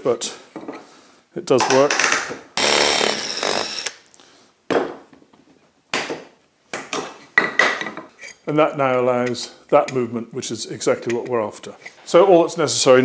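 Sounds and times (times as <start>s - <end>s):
drill bit scraping wood: 2.6s - 4.0s.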